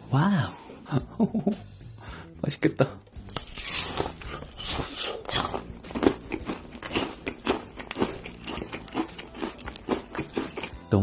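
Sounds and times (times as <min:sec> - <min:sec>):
candy apple crunching: 0:03.3 - 0:10.9.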